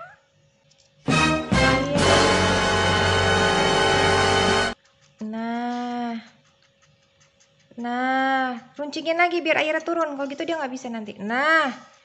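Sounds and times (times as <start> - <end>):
kitten meowing: 0.0 - 0.2.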